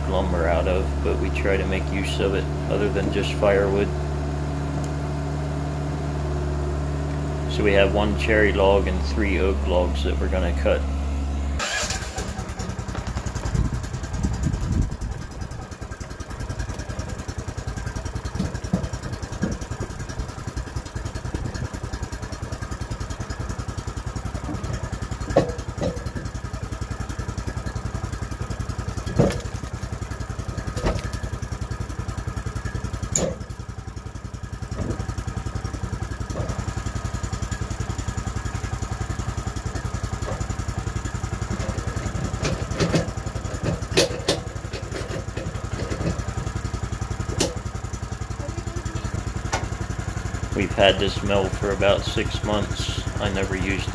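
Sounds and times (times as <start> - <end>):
small gasoline engine idling: 0.0 - 53.9
log clunking on steel bed: 11.9 - 14.2, 15.6 - 48.2, 49.2 - 50.6.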